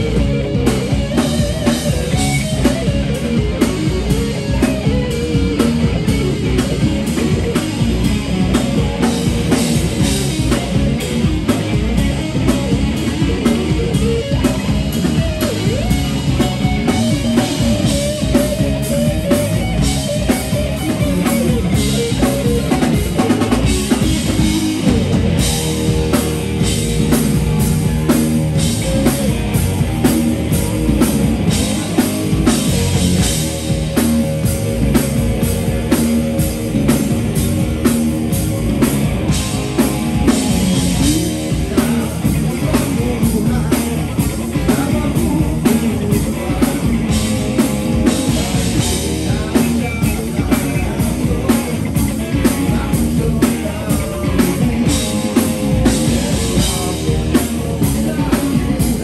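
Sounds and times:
bass guitar: 0.0 - 59.0
drum kit: 0.0 - 59.0
electric guitar: 0.0 - 59.0
person singing: 39.8 - 59.0.

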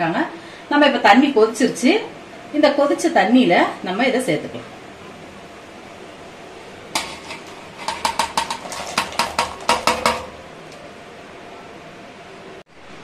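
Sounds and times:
steel plate clinking on pot rim: 7.0 - 10.3.

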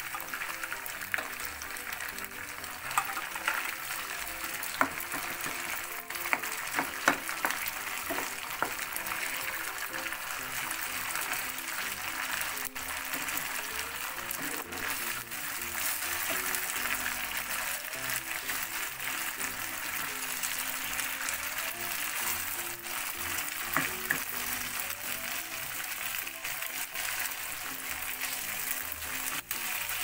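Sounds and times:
meat sizzling in a pan: 0.0 - 30.0
spatula scraping a pan: 14.2 - 16.7.

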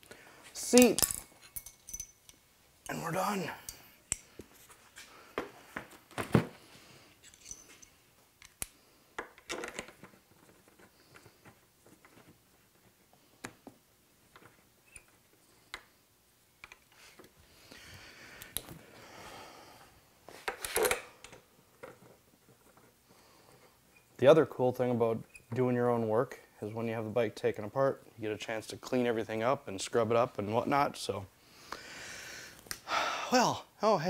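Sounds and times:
tools clicking and knocking: 0.7 - 3.0, 3.6 - 4.5, 7.2 - 10.2.

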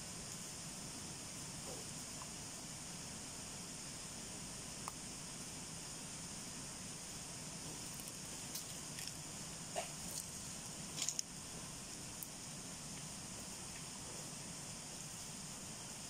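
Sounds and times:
steady high hiss: 0.0 - 16.0
wild boar rooting in dry leaves: 7.6 - 12.3.

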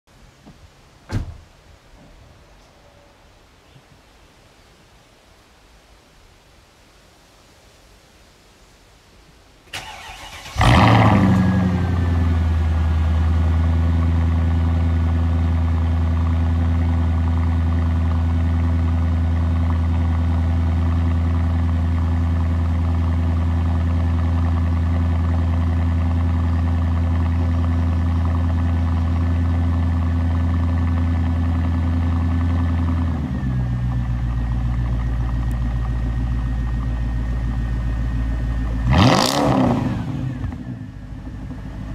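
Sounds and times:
car engine revving and idling: 9.9 - 41.9.

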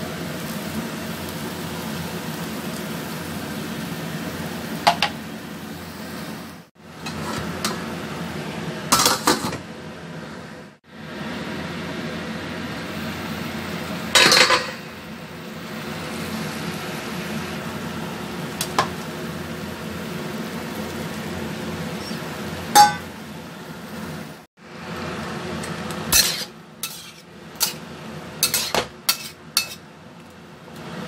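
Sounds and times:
food sizzling in a wok: 0.0 - 31.0
metal clanks against pan: 22.8 - 23.1, 28.4 - 29.8.

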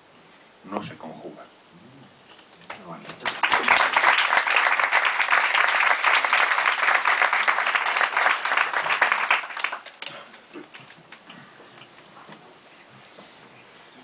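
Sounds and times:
audience applauding: 2.7 - 11.3.

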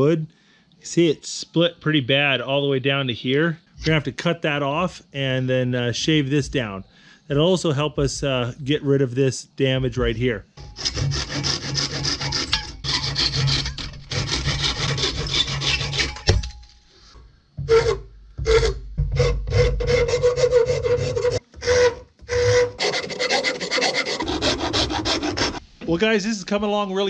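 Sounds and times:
rasp scraping wood: 10.6 - 16.5, 17.7 - 25.6
handsaw cutting wood: 10.7 - 16.2, 17.7 - 25.6.

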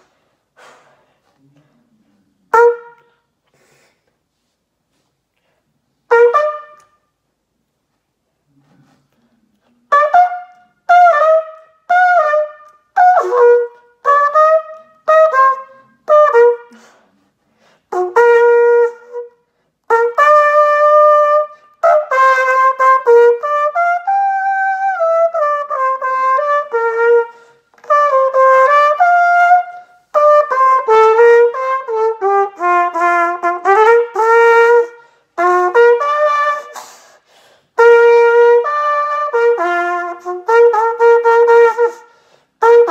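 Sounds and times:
solo trumpet playing: 2.5 - 3.3, 6.0 - 7.2, 9.8 - 17.0, 17.9 - 42.9.

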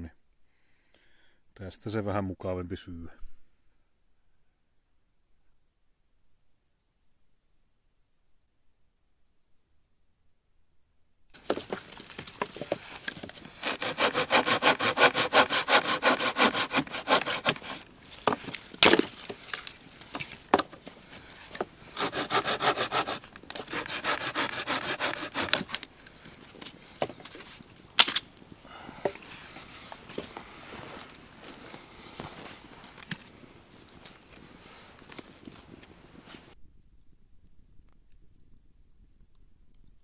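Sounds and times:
hand saw cutting wood: 11.4 - 20.8, 21.4 - 25.8.

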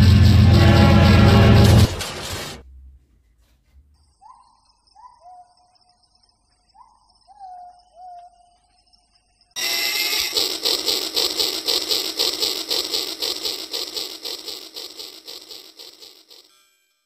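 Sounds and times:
toy train clattering on track: 9.6 - 16.5.

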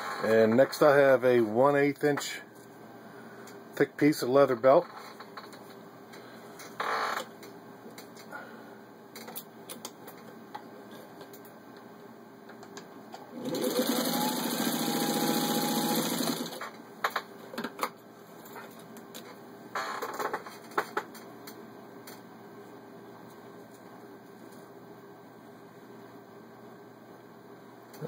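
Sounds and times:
sewing machine stitching: 13.3 - 16.6.

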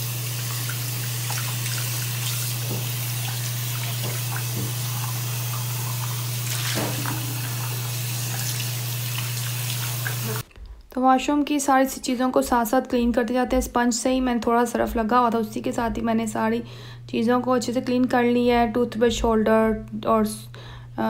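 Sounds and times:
water running into a sink: 0.0 - 10.5
plastic knocking against basin: 4.0 - 4.8.

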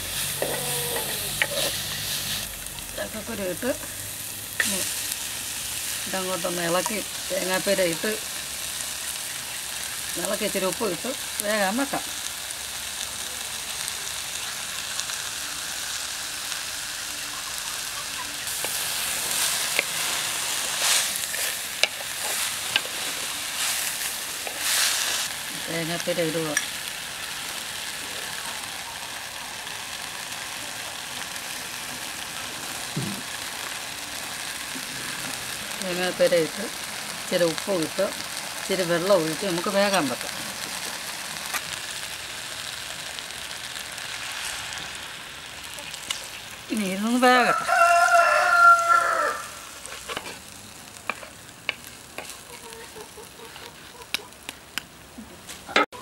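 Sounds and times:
food sizzling in oil: 0.0 - 56.0
rooster crowing: 47.4 - 49.8.

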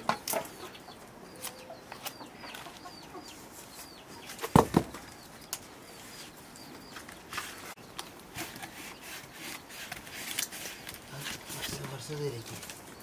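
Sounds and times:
small bird chirping: 0.1 - 9.9
firewood knocking on ground: 4.5 - 5.0.

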